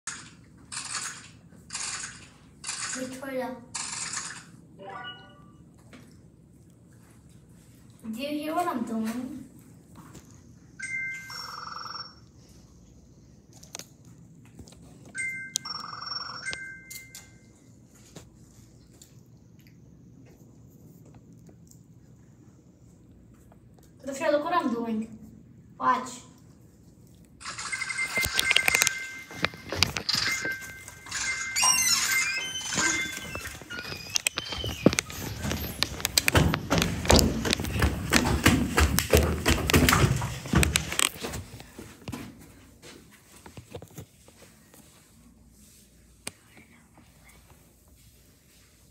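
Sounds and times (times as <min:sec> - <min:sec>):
electronic ringtone with warbling trill: 0:04.8 - 0:05.6, 0:10.8 - 0:12.3, 0:15.2 - 0:17.4, 0:27.5 - 0:34.8.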